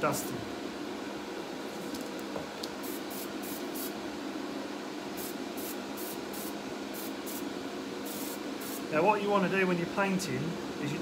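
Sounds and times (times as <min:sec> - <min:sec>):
steady low hum: 0:00.0 - 0:11.0
airbrush spraying hisses: 0:08.0 - 0:08.8.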